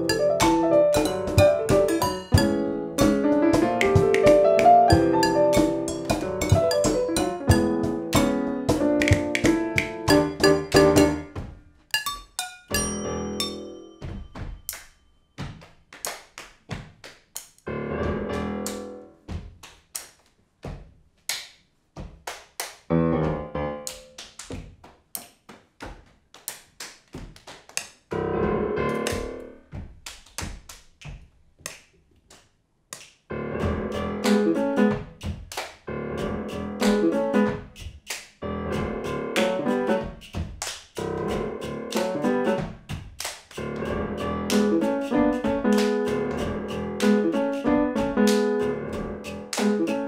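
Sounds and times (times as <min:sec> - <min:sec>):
piano chords: 0:00.0 - 0:12.1, 0:12.7 - 0:14.6, 0:17.7 - 0:19.2, 0:22.9 - 0:24.2, 0:28.1 - 0:29.6, 0:33.3 - 0:35.1, 0:35.9 - 0:37.7, 0:38.4 - 0:40.2, 0:41.0 - 0:42.7, 0:43.6 - 0:50.0
hand claps and body slaps: 0:00.4 - 0:11.5, 0:14.1 - 0:17.6, 0:18.4 - 0:28.1, 0:29.0 - 0:50.0.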